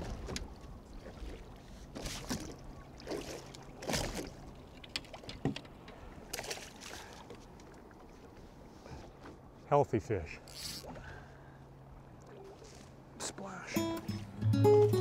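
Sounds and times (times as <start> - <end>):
water lapping against hull: 0.0 - 9.7, 10.3 - 13.7.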